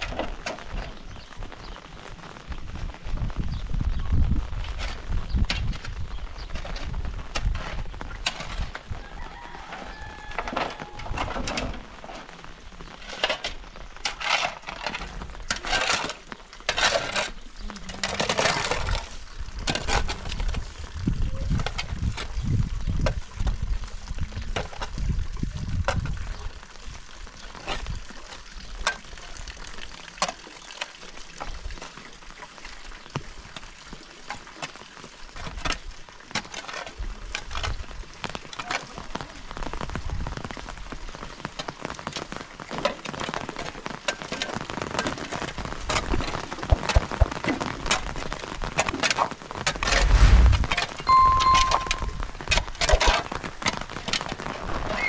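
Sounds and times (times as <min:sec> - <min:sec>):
raindrops ticking on hard surfaces: 0:00.0 - 0:49.8, 0:51.9 - 0:55.0
loud low rumble: 0:49.8 - 0:50.8.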